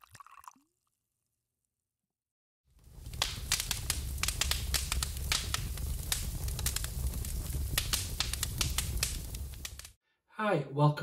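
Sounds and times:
fire crackling and popping: 2.7 - 10.0.

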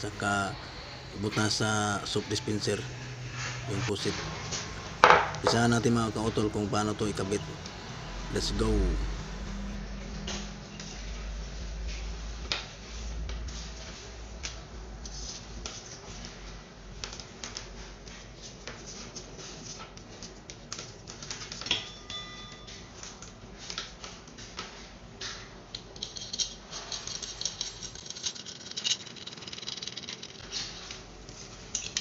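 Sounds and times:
sharp metallic clink: 21.7 - 22.9.

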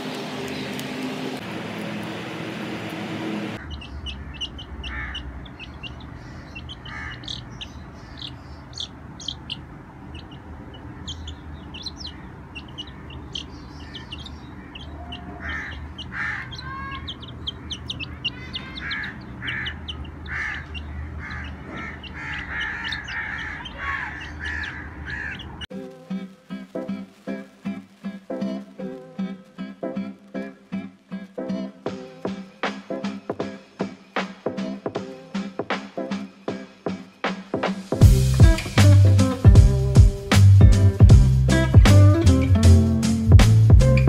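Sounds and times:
chicks peeping: 0.0 - 25.7.

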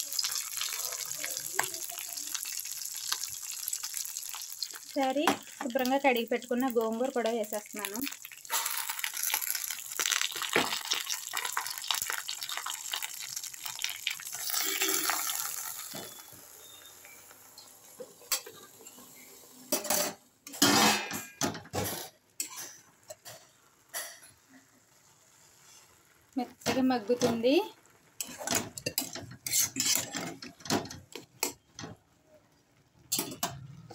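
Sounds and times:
steel spatula scraping pan: 28.2 - 30.5.

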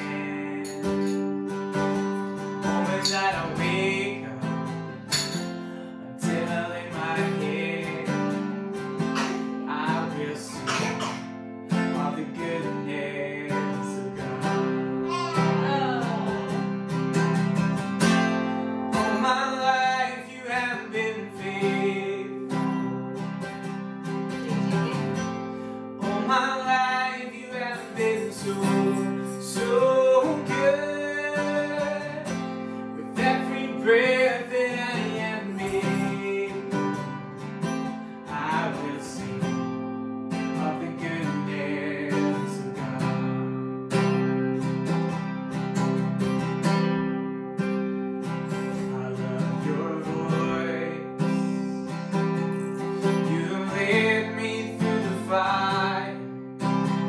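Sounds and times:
man singing: 0.0 - 1.3, 2.6 - 16.9, 18.0 - 23.0, 26.0 - 37.3, 38.2 - 43.7, 48.5 - 56.5
acoustic guitar strumming: 0.0 - 57.0.

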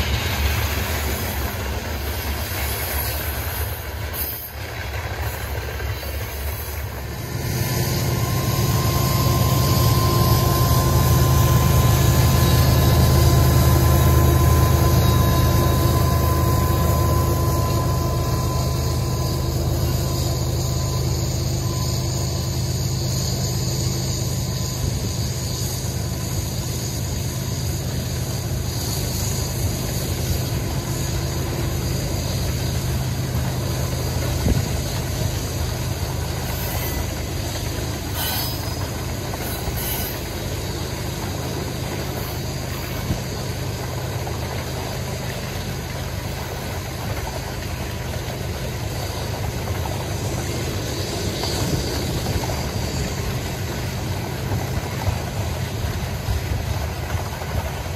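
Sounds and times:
freight train rumbling and rattling: 0.0 - 57.9.

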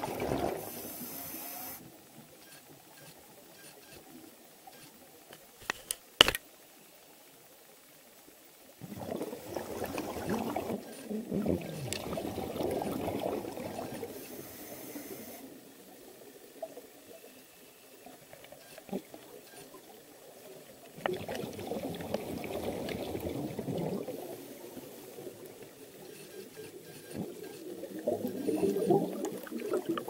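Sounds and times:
exhaled bubbles underwater: 0.0 - 0.8, 8.8 - 14.2, 20.9 - 25.8, 26.8 - 30.0.

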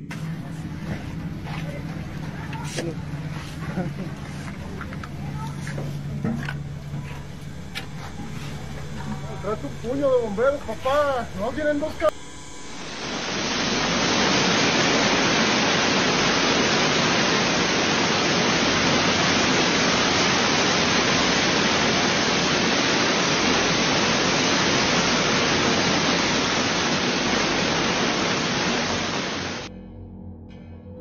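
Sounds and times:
hail and rain pelting: 13.4 - 29.7.

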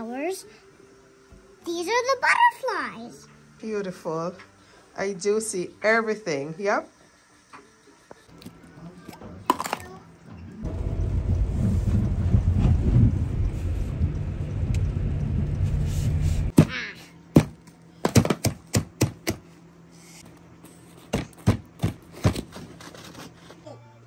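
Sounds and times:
ice blocks knocking together: 9.5 - 9.9
truck engine rumble: 10.6 - 16.5.

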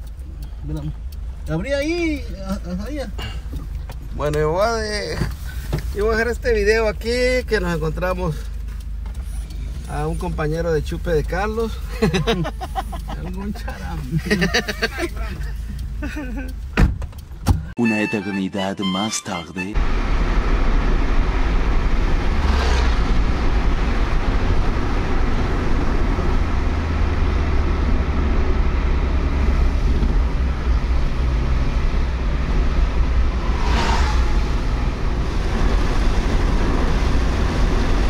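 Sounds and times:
car road and engine rumble: 0.0 - 17.8, 19.8 - 38.0
passing vehicle whooshes: 19.8 - 38.0.

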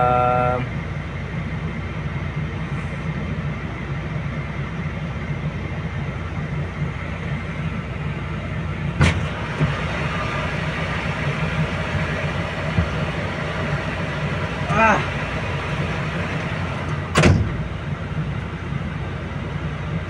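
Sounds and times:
excavator diesel engine under load: 0.0 - 20.0
sharp knock: 17.1 - 17.6.

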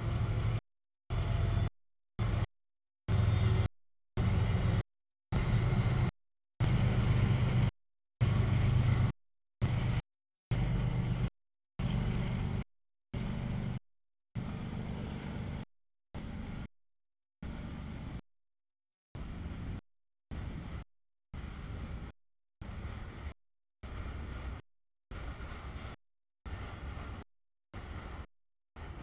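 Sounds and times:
freight train passing: 0.0 - 2.4, 3.1 - 4.8.

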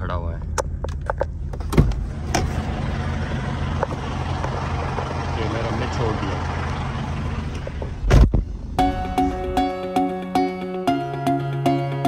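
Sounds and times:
diesel truck engine idling: 2.0 - 9.5
music with plucked notes: 8.8 - 12.0.

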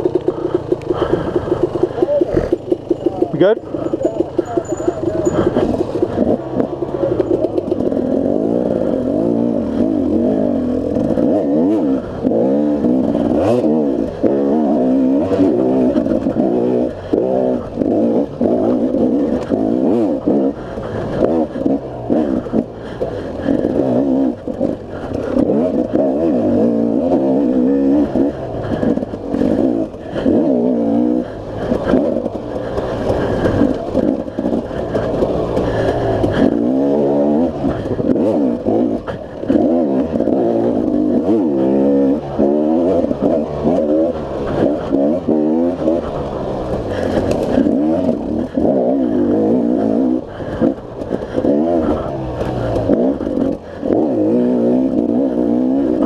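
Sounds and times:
dirt bike engine revving: 0.0 - 56.0
bike clattering over rough ground: 31.3 - 41.4.

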